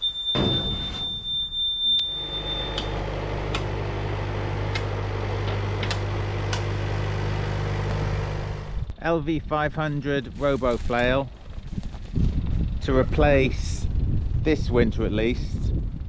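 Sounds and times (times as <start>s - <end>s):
high warning beep: 0.0s - 3.0s
machine engine running: 2.2s - 8.9s.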